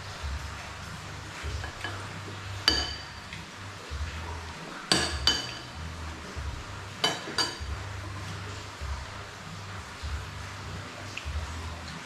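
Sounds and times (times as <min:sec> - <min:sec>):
metal spoon clinking on dishes: 0:01.6 - 0:03.3, 0:04.9 - 0:05.8, 0:07.0 - 0:07.7.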